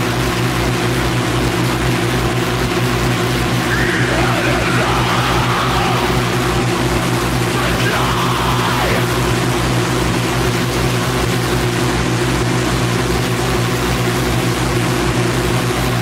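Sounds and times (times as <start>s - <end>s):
distorted noise wall: 1.8s - 16.0s
low droning hum: 3.3s - 11.7s.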